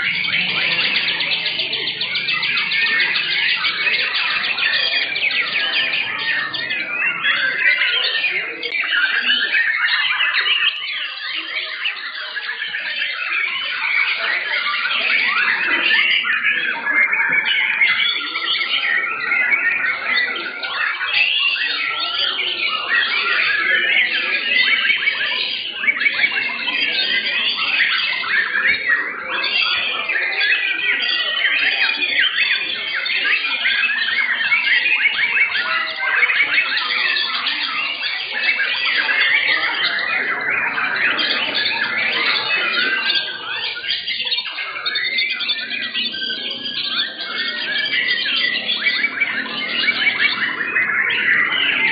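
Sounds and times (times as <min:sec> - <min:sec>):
songbirds whistling and chirping: 0:00.0 - 0:51.9.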